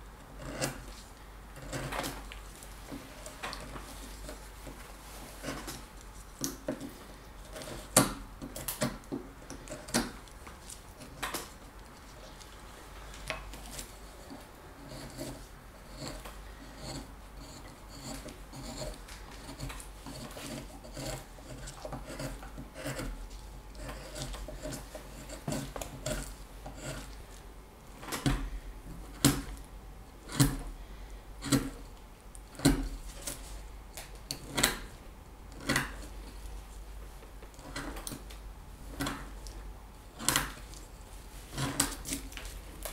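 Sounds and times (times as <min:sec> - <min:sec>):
knife scraping wood: 0:00.2 - 0:12.6, 0:13.2 - 0:27.4, 0:31.4 - 0:31.9, 0:37.5 - 0:38.2, 0:40.2 - 0:42.9.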